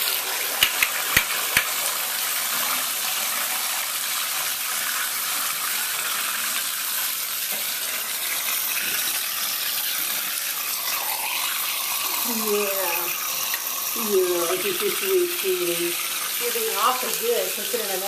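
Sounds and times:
faucet water running: 0:00.0 - 0:18.0
sharp click: 0:00.6 - 0:01.7.

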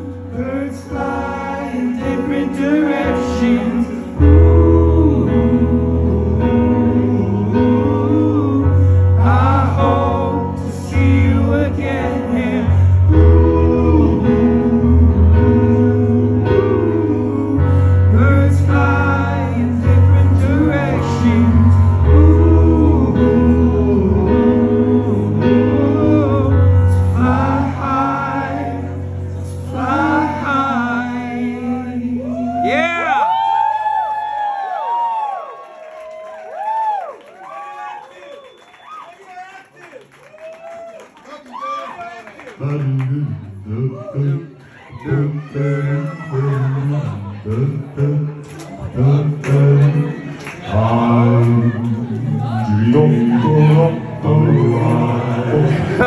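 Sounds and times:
man singing into a microphone: 0:00.0 - 0:33.3, 0:42.5 - 0:56.0.

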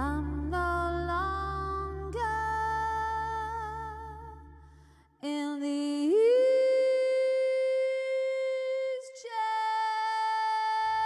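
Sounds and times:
woman singing long held notes: 0:00.0 - 0:04.5.

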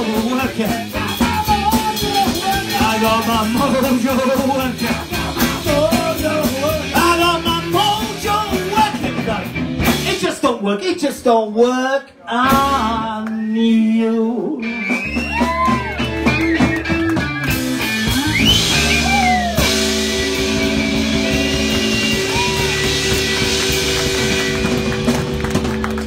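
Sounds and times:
live rock band playing: 0:00.0 - 0:10.4, 0:12.4 - 0:13.2, 0:14.6 - 0:26.0
person singing: 0:00.0 - 0:10.4, 0:12.2 - 0:15.8
electric guitar bending notes: 0:14.6 - 0:26.0.

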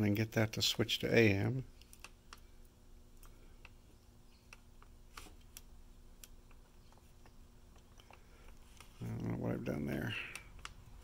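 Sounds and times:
faint radio hum: 0:00.0 - 0:11.0.

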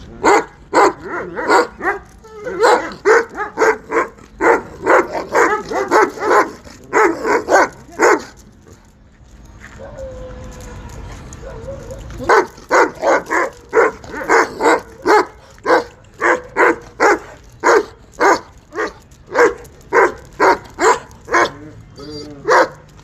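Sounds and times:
dog barking: 0:00.2 - 0:02.0, 0:02.6 - 0:08.3, 0:11.5 - 0:21.5.

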